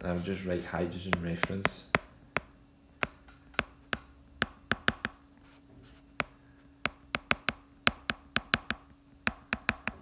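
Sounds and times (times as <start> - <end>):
faint low hum: 0.0 - 10.0
pen tapping on tablet: 1.1 - 5.2, 6.2 - 10.0.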